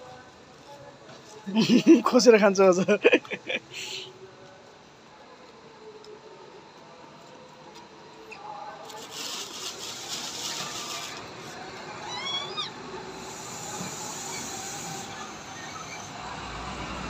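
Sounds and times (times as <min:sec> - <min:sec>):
high squeaky calls: 0:11.8 - 0:16.2.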